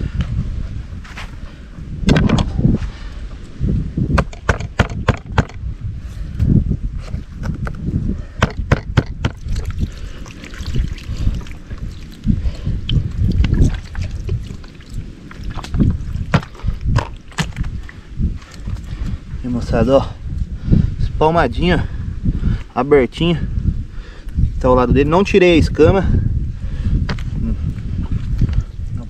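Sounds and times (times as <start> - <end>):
wind buffeting microphone: 0.0 - 29.0
water pouring and sloshing: 9.2 - 19.2.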